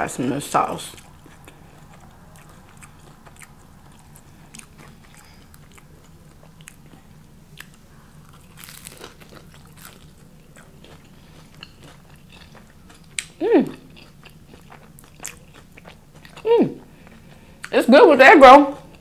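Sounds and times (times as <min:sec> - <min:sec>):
crunch of biting crisp food: 0:07.6 - 0:13.3.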